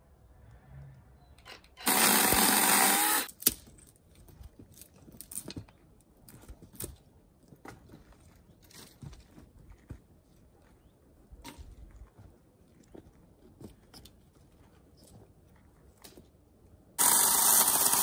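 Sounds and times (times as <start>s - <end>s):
power tool running: 1.8s - 3.3s, 17.0s - 18.0s.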